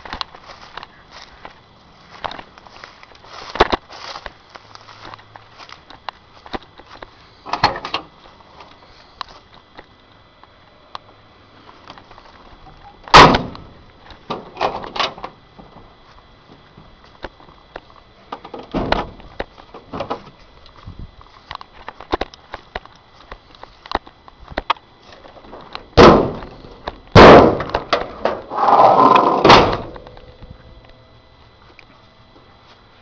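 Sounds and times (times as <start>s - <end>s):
truck door slamming: 13.1s - 13.7s, 18.5s - 19.2s, 26.0s - 28.4s, 29.3s - 30.0s
truck door thuds: 13.1s - 13.7s, 18.5s - 19.2s, 26.0s - 28.3s, 29.4s - 30.0s.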